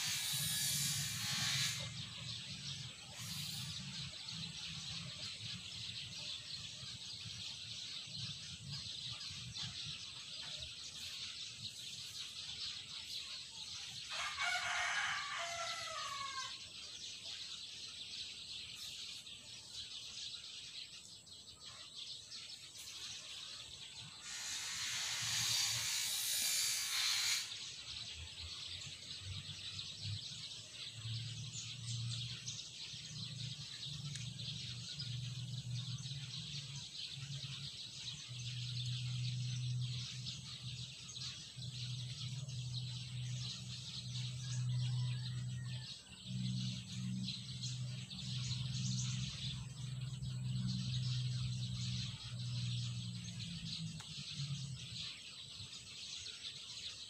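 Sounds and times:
rooster crowing: 14.1 - 16.6, 44.5 - 46.2.

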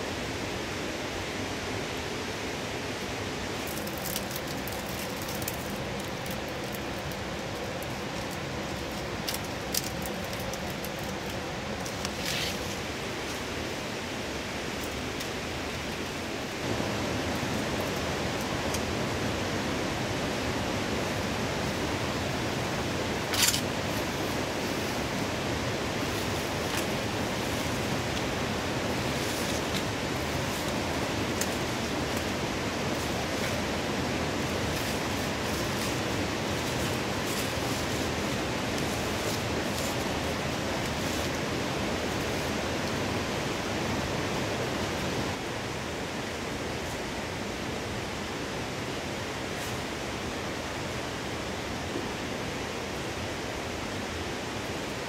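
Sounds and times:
rushing background hiss: 0.0 - 55.0
palm-leaf panels rustling: 3.5 - 19.0, 21.0 - 45.3.

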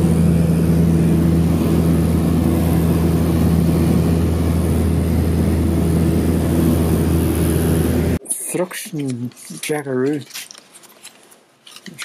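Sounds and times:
light aircraft engine drone: 0.0 - 8.2.

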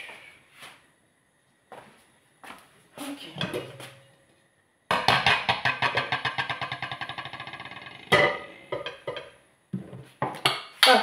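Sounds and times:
metal cookware clank: 4.9 - 9.4
glass lid rattling on hard surface: 5.0 - 9.3
metal rim ringing: 5.7 - 9.3.

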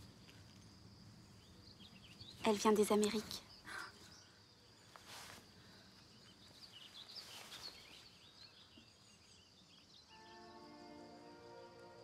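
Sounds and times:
small birds chirping: 0.0 - 12.0
soft rustles: 4.8 - 8.2.

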